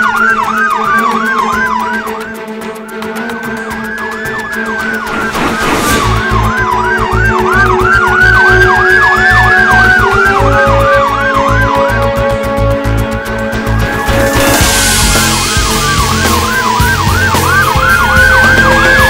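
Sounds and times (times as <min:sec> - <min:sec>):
siren wailing and yelping: 0:00.0 - 0:02.4, 0:03.5 - 0:12.6, 0:13.9 - 0:19.0
music with heavy low beat: 0:04.6 - 0:19.0.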